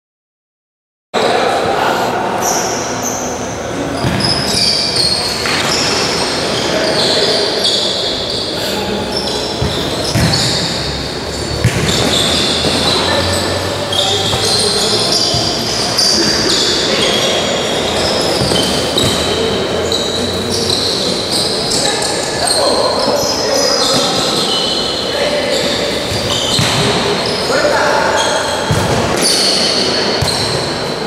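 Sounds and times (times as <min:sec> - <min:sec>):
players calling out: 0:01.2 - 0:31.0
shoes squeaking on floor: 0:02.4 - 0:30.7.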